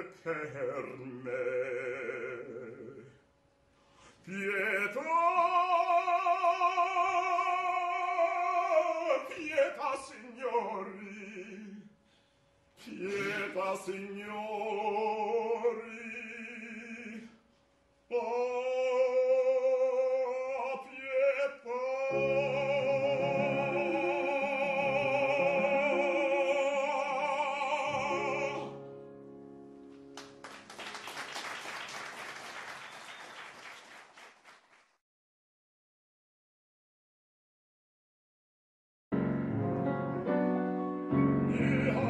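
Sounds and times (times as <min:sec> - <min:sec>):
operatic baritone singing: 0:00.0 - 0:03.2, 0:04.2 - 0:11.9, 0:12.8 - 0:17.3, 0:18.1 - 0:28.9, 0:41.2 - 0:42.0
piano chords: 0:22.0 - 0:31.3, 0:39.1 - 0:42.0
audience applauding: 0:30.1 - 0:35.0.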